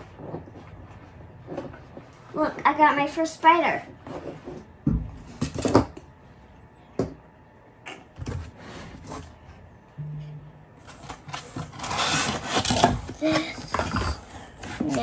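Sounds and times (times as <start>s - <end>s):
low hum: 9.4s - 11.4s.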